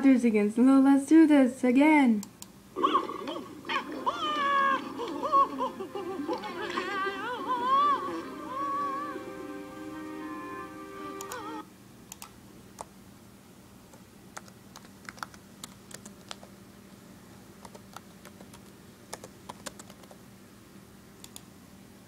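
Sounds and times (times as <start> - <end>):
cartoon music from laptop speakers: 3.7 - 11.7
laptop keys clicking: 13.9 - 16.5, 17.6 - 20.2.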